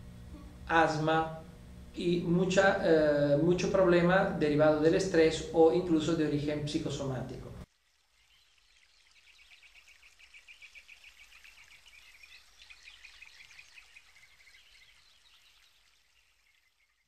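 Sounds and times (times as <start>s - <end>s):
faint low hum: 0.0s - 7.7s.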